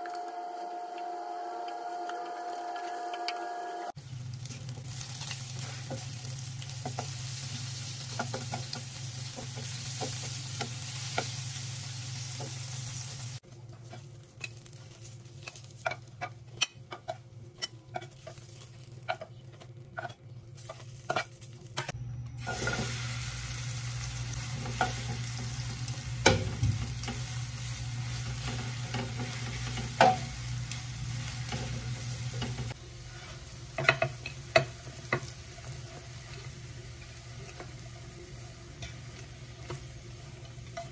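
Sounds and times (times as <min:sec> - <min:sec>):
food sizzling in oil: 0:00.4 - 0:40.9
utensils clicking and scraping pan: 0:13.7 - 0:22.9, 0:24.4 - 0:38.0, 0:38.7 - 0:40.9.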